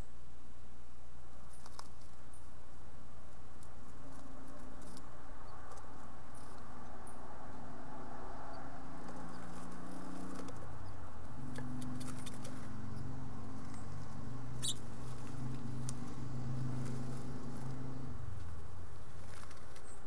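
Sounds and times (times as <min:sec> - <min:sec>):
low hum: 0:02.3 - 0:19.3
claws scratching on wood: 0:09.0 - 0:10.8.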